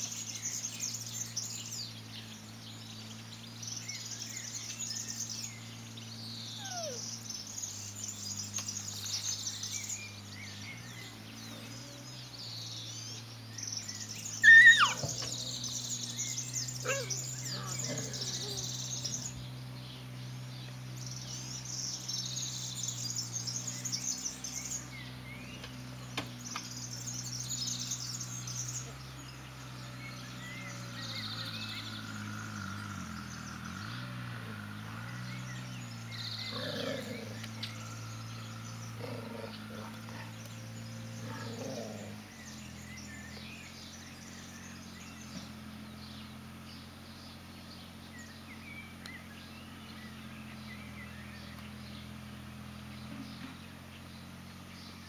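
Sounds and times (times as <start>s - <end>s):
songbirds singing: 0.0s - 55.0s
puppy yelp: 6.6s - 7.1s, 14.4s - 15.2s, 16.8s - 17.2s.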